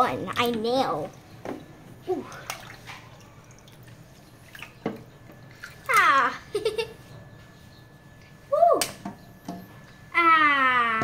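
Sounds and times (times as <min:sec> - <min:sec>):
water splashing in sink: 0:00.3 - 0:06.2.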